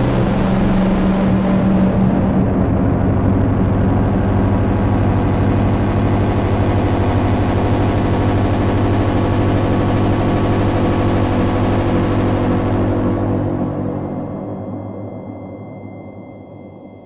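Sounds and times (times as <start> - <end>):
synthesizer drone: 0.0 - 17.0.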